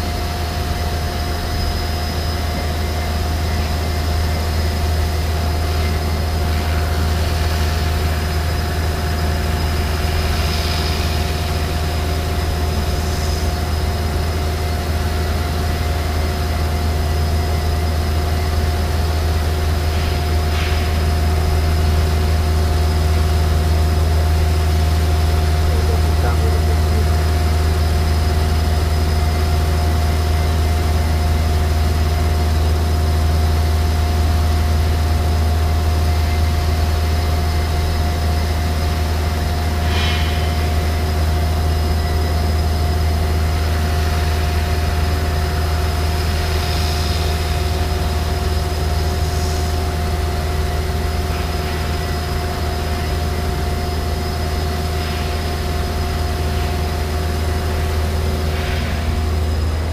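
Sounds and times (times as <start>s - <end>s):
saw machine humming and whining: 0.0s - 59.9s.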